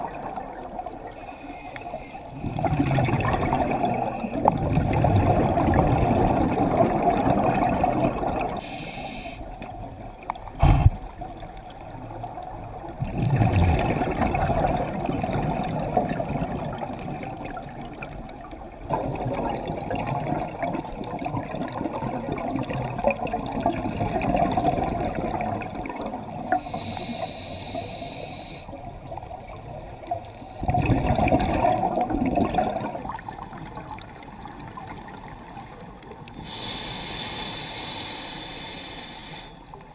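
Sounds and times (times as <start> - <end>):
diver breathing through regulator: 1.2 - 2.4, 8.6 - 9.5, 26.5 - 28.8, 36.4 - 39.7.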